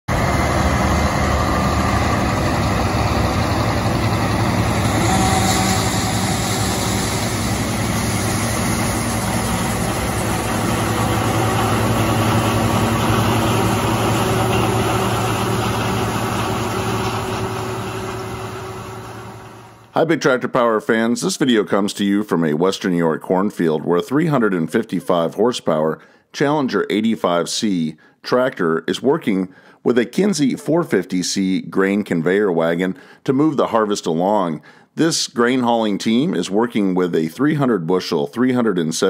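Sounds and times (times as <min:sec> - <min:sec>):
auger unloading corn: 0:00.1 - 0:19.8
diesel engines droning: 0:00.1 - 0:19.9.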